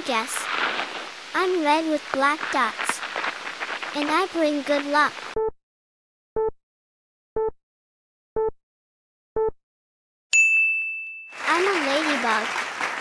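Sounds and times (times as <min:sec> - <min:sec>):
short countdown beeps: 0:05.4 - 0:05.6, 0:06.4 - 0:06.6, 0:07.4 - 0:07.6, 0:08.4 - 0:08.6, 0:09.4 - 0:09.6
bright ringing ding: 0:10.4 - 0:11.4.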